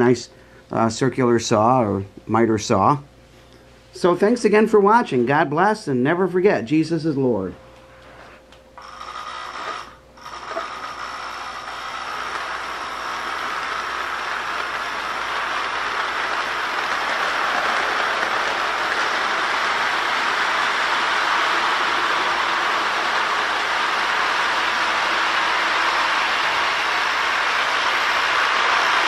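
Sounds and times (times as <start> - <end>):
toy train wheels rattling on rails: 8.8 - 23.6.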